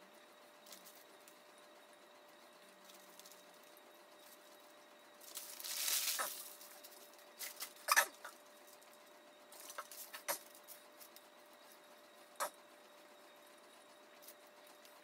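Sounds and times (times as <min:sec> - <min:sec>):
foil and paper crinkling: 0:05.2 - 0:07.8.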